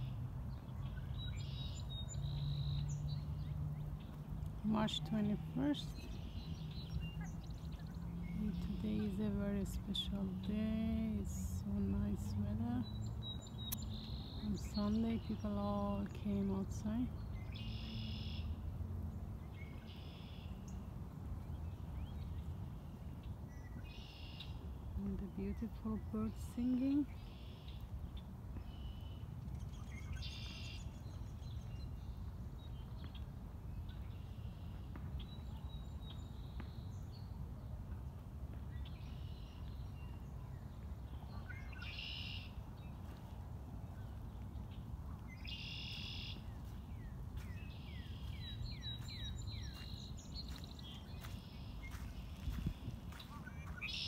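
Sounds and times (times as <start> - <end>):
blackbirds singing: 0.0 - 18.6, 38.7 - 43.1, 44.0 - 54.0.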